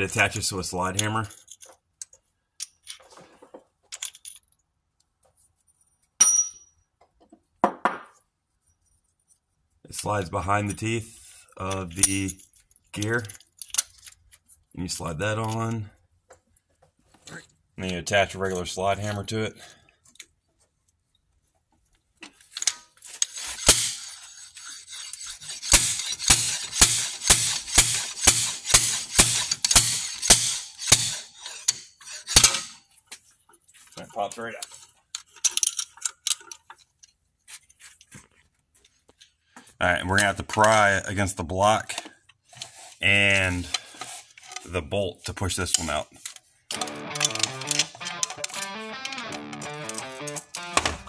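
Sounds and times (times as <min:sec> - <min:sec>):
metal tools clicking and rustling: 0:00.9 - 0:03.2, 0:03.8 - 0:04.7, 0:11.6 - 0:14.7, 0:22.2 - 0:32.9, 0:34.3 - 0:37.2, 0:45.6 - 0:51.0
sharp metallic clink: 0:06.2 - 0:06.8
metal rubbing and scraping: 0:23.0 - 0:32.9
background music with steady beat: 0:46.8 - 0:51.0.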